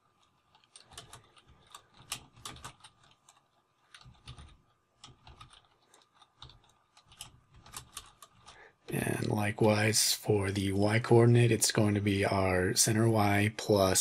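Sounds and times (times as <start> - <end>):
typing on computer keyboard: 0.1 - 8.6.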